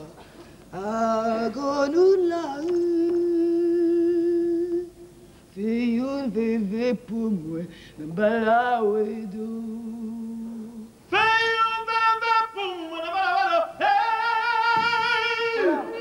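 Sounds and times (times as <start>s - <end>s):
person singing with vibrato: 0.0s - 16.0s.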